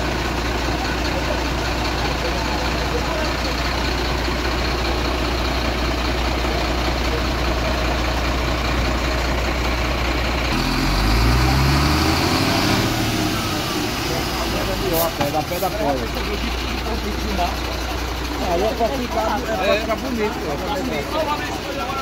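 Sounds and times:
car engine idling: 0:00.0 - 0:22.0
engine revving: 0:10.4 - 0:16.8.

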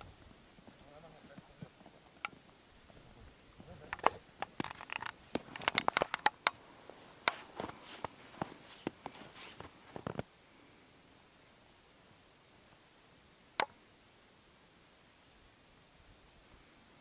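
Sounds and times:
footsteps crunching in snow: 0:06.7 - 0:10.2.

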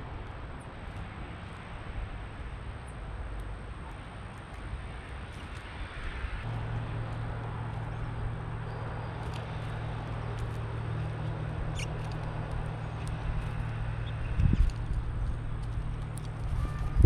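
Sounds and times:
doves pecking seed: 0:06.5 - 0:16.9.

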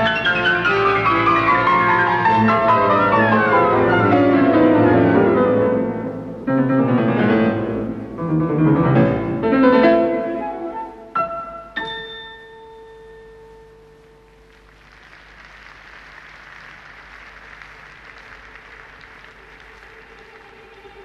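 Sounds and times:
audience applause: 0:14.5 - 0:21.0.

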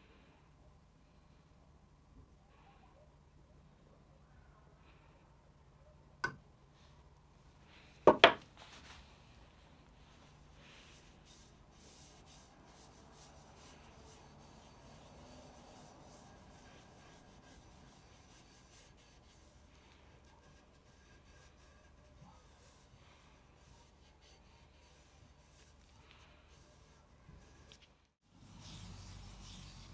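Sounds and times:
sharp knocks: 0:08.1 - 0:08.4
gloved hand rubbing wood: 0:09.6 - 0:29.9.

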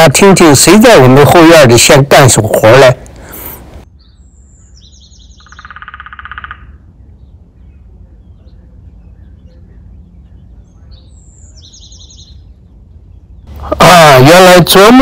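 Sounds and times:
high chirping calls: 0:03.2 - 0:13.7
woodpecker drumming: 0:05.4 - 0:06.8.

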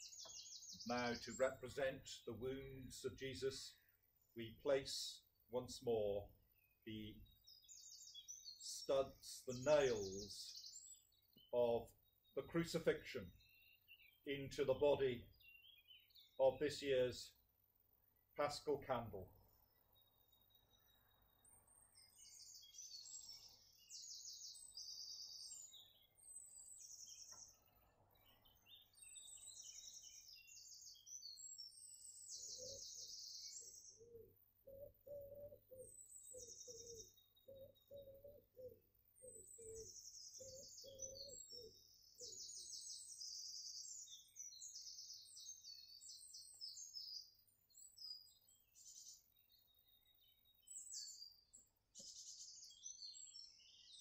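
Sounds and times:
songbirds chirping and trilling: 0:00.0 - 0:54.0
low cooing bird call: 0:28.4 - 0:49.2.

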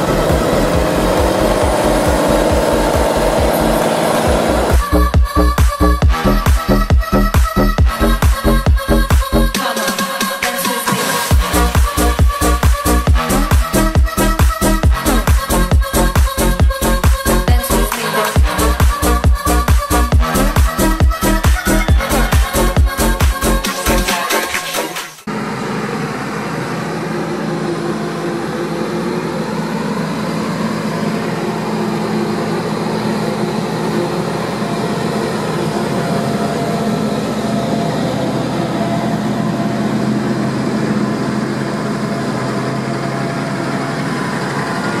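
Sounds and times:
diesel farm machinery running: 0:00.0 - 0:09.8, 0:10.8 - 0:24.1, 0:25.2 - 0:45.0
dance music: 0:00.0 - 0:25.3.

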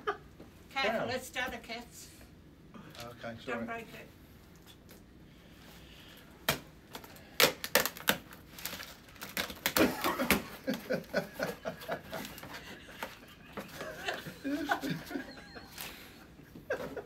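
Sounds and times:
packing paper rustling: 0:07.0 - 0:16.1
cardboard crackling and ripping: 0:07.4 - 0:10.8.

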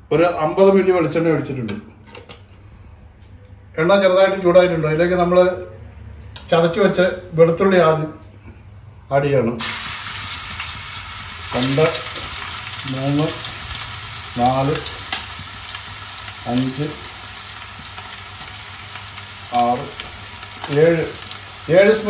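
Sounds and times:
garlic sizzling in hot oil: 0:09.6 - 0:22.0.

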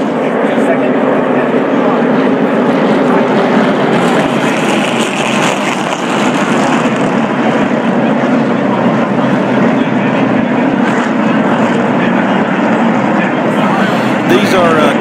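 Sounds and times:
drone of many race engines: 0:00.0 - 0:15.0.

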